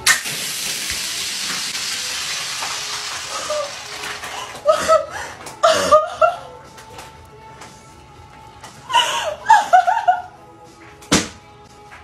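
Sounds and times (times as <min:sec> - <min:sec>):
foaming ketchup hissing: 0:00.0 - 0:04.2.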